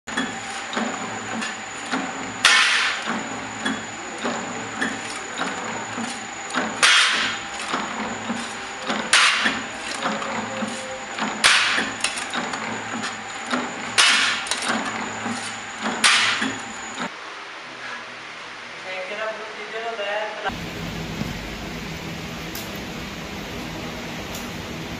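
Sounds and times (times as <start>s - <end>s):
power press harsh strokes: 0.1s - 17.0s
machine running noise: 0.1s - 17.2s, 20.5s - 24.9s
constant high whine: 0.1s - 19.8s, 20.4s - 24.9s.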